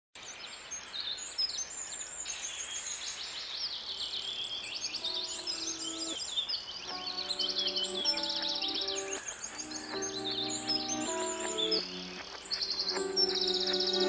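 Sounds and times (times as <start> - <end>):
small birds chirping and trilling: 0.2 - 14.0
soft held music notes: 6.9 - 14.0.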